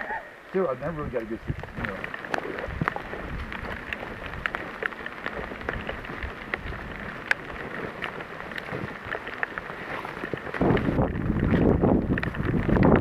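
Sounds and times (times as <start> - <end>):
footsteps crunching through dry leaves: 1.2 - 11.8.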